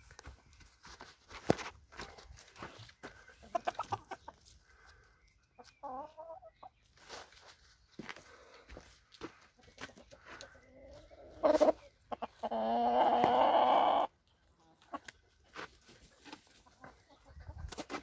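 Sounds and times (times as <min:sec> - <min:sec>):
chickens clucking softly: 0:02.8 - 0:07.2, 0:09.3 - 0:18.0.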